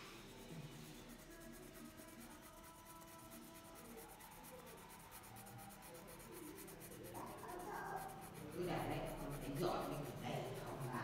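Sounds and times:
pencil scratching on paper: 0.0s - 11.0s.

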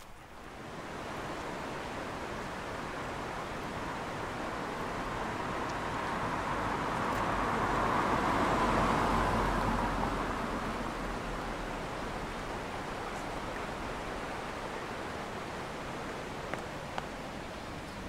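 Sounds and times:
vehicle passing by: 4.6s - 12.0s.

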